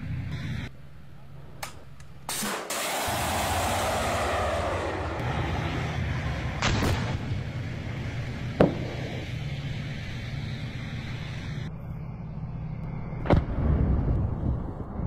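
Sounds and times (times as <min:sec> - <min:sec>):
sharp bangs: 0:02.3 - 0:09.4
missile rushing in flight: 0:02.3 - 0:11.2
low rumble: 0:02.7 - 0:15.0.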